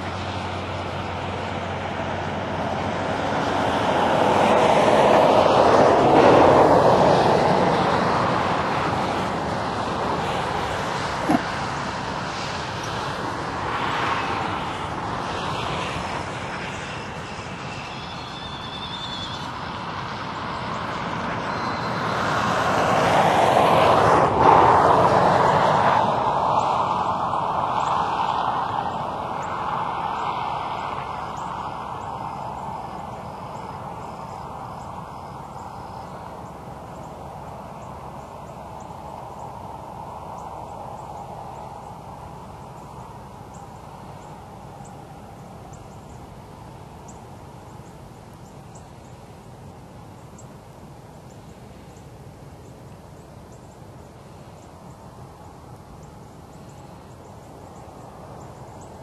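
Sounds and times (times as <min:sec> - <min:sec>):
passing engine: 0:00.0 - 0:59.0
rural hush: 0:10.5 - 0:13.1.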